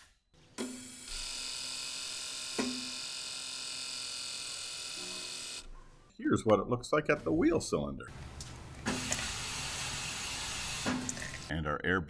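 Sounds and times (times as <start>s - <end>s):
electric pump motor buzz: 0.5s - 5.7s, 8.8s - 11.5s.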